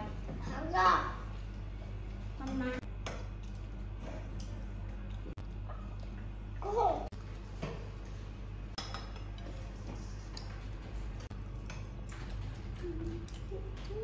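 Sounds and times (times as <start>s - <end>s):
steady low hum: 0.0s - 14.0s
metal spoons clinking in bowls: 8.7s - 10.7s.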